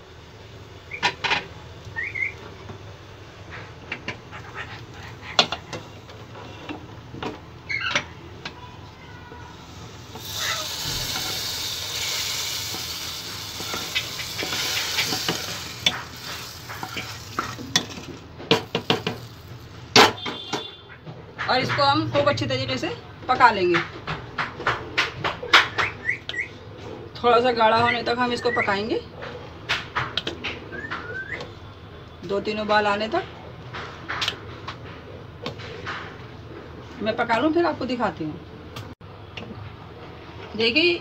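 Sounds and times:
loud sizzling hiss: 9.5 - 19.8.

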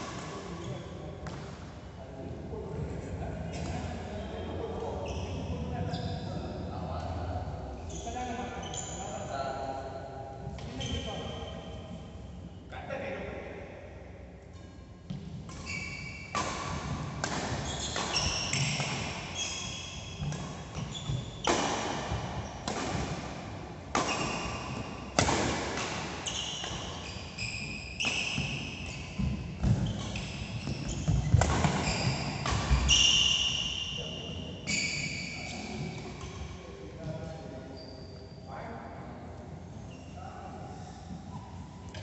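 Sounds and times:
shoes squeaking on court: 3.5 - 6.5, 7.8 - 9.3, 10.6 - 12.0, 15.1 - 22.6, 26.2 - 38.5
racket striking shuttlecock: 16.3 - 20.8, 21.4 - 26.9, 31.1 - 32.9.

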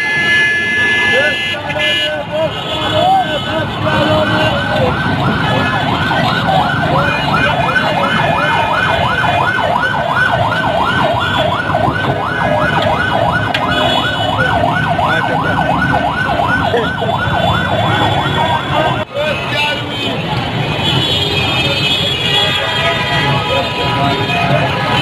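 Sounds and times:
busy street hubbub: 0.0 - 25.0
electronic siren yelping: 4.5 - 19.0.

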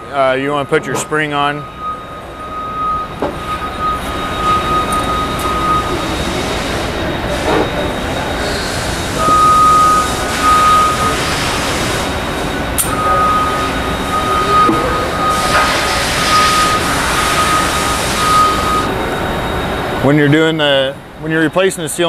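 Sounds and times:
high-pitched whine: 0.0 - 22.0
machinery running: 0.0 - 22.0.

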